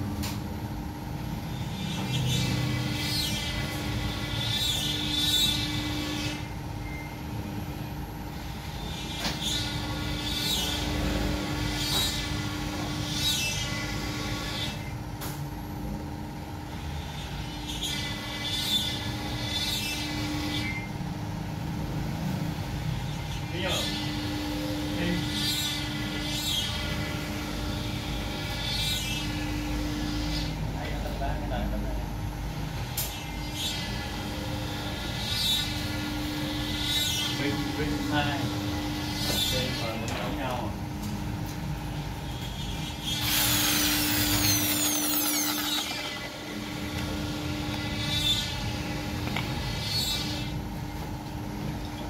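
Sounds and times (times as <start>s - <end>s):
wood router whining: 33.1s - 40.8s, 42.3s - 52.0s
electric drill whining: 43.0s - 50.5s.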